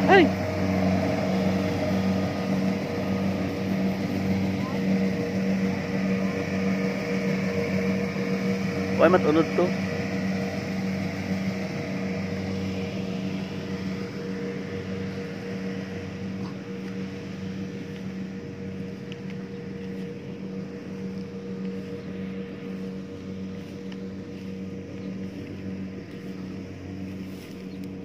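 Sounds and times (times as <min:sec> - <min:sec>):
diesel engine droning: 0:00.0 - 0:28.0.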